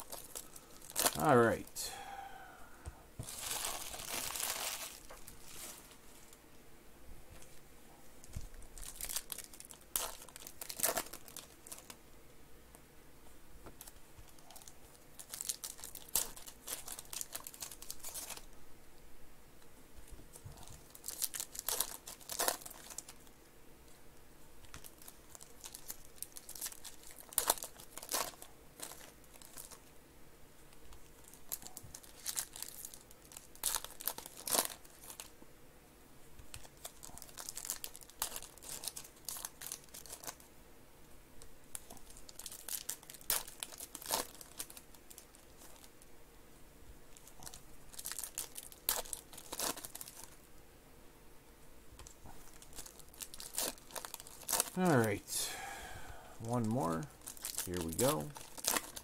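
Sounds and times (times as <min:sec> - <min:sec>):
foil wrappers tearing and crinkling: 0:00.0 - 0:01.6, 0:03.2 - 0:06.4, 0:08.4 - 0:12.0, 0:13.8 - 0:18.5, 0:20.5 - 0:23.3, 0:24.6 - 0:29.9, 0:30.8 - 0:35.3, 0:36.4 - 0:40.5, 0:41.7 - 0:46.0, 0:47.1 - 0:50.4, 0:52.0 - 0:55.1, 0:56.5 - 0:59.0.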